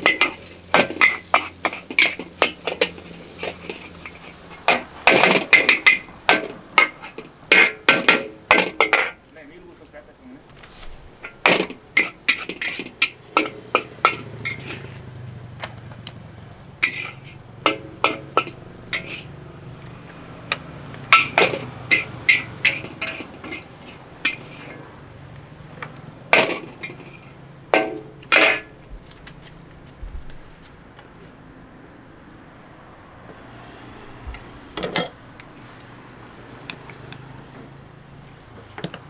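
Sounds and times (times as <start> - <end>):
metal spatula clanging on a wok: 0.0 - 9.2, 11.2 - 14.9, 16.8 - 19.4, 20.5 - 24.8, 26.3 - 28.8.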